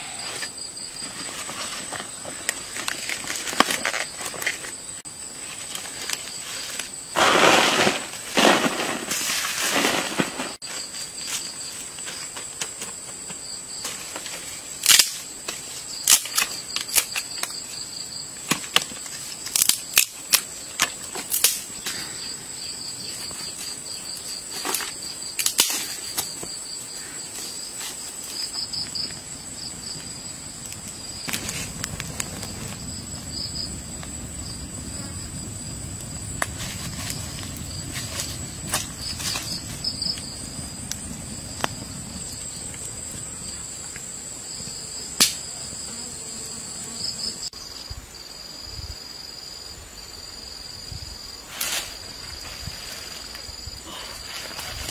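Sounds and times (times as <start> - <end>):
crickets chirring: 0.0 - 54.9
sharp cracks and snaps: 14.8 - 17.6, 18.4 - 22.0, 24.6 - 26.4, 30.6 - 32.8, 45.2 - 45.5
wood fire rumbling: 29.0 - 43.1.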